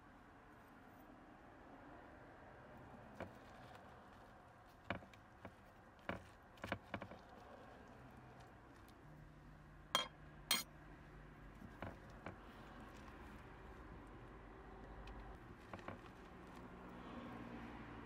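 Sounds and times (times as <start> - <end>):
spoon clinks: 10.0 - 10.6
spoon scraping and tapping: 10.0 - 10.6.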